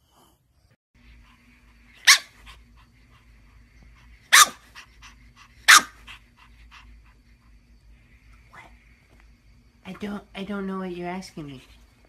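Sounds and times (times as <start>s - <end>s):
puppy barking: 2.0s - 2.4s, 4.3s - 4.7s, 5.7s - 6.0s.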